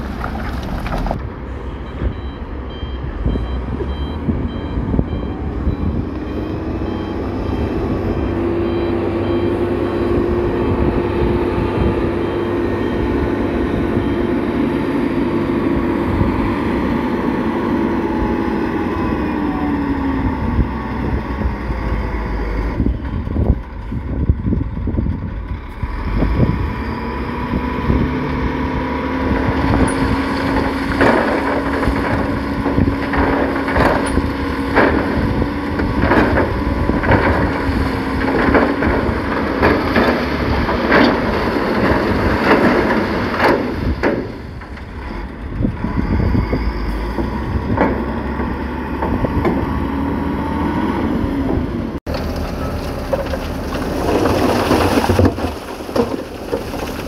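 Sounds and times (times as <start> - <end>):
diesel machinery running: 0.0 - 57.0
sharp clanks and knocks: 29.8 - 45.1, 47.1 - 49.6.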